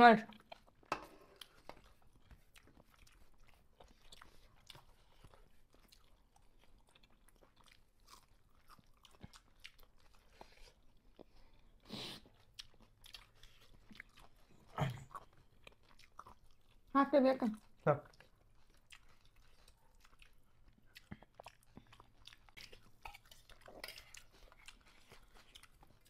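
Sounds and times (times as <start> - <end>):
quiet chewing: 0.3 - 26.0.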